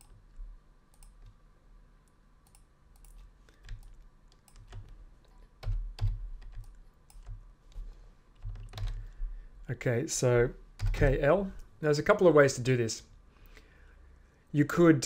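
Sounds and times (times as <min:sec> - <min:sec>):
keyboard and mouse clicking: 0:00.9 - 0:01.4, 0:02.4 - 0:09.2.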